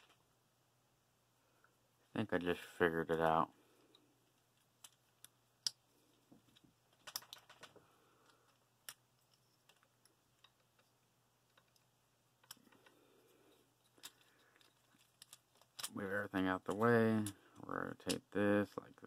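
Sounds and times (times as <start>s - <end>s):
plastic toy parts clicking: 4.3s - 5.8s, 6.5s - 13.0s, 13.8s - 16.0s, 18.0s - 18.4s.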